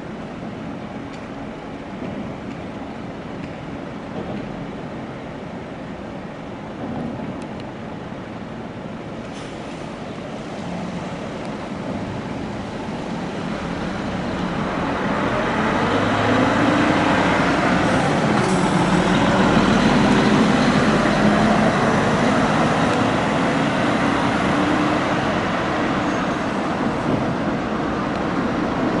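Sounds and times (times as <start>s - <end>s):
road traffic noise: 0.0s - 29.0s
coach diesel engine accelerating: 12.3s - 26.0s.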